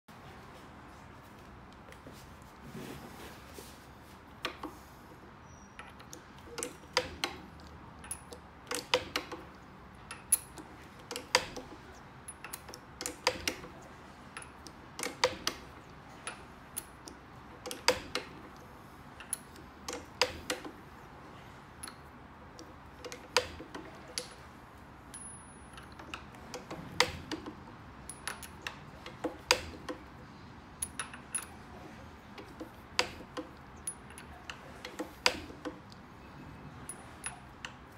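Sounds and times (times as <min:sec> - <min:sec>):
metal pin clicking on steel: 0:05.8 - 0:20.8, 0:25.1 - 0:30.2, 0:32.4 - 0:36.0.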